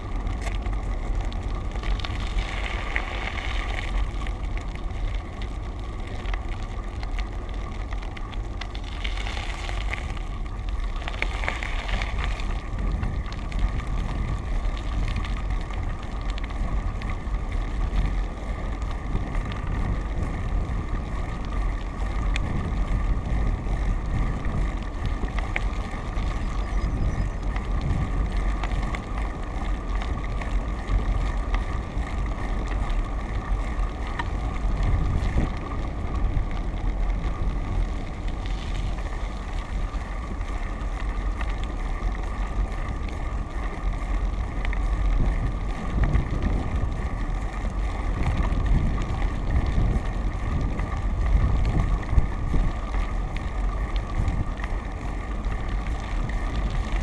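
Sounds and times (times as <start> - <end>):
faint hum: 0.0 - 57.0
road rumble: 0.0 - 57.0
wind rush: 22.0 - 29.2.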